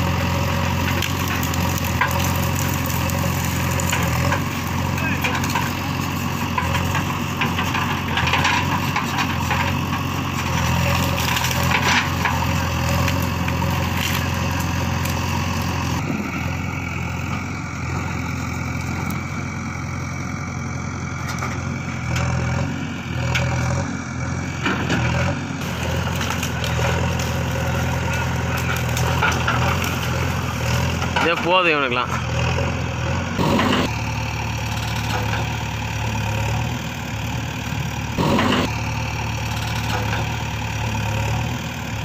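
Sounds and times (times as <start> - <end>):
diesel engine running under load: 0.0 - 42.0
wood crunching and snapping: 0.2 - 16.0, 24.9 - 31.5.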